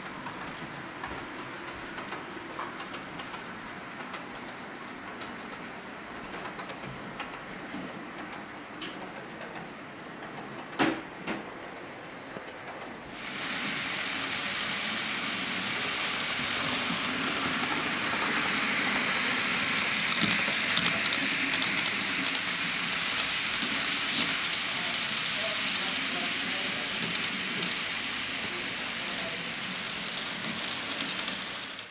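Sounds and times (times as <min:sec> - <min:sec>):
model train wheels rolling on rails: 0:12.8 - 0:31.9.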